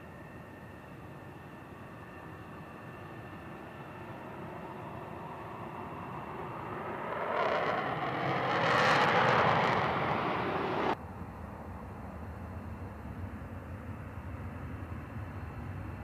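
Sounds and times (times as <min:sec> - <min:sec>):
steady jet rumble: 0:00.0 - 0:16.0
jet taking off on afterburner: 0:01.7 - 0:11.0.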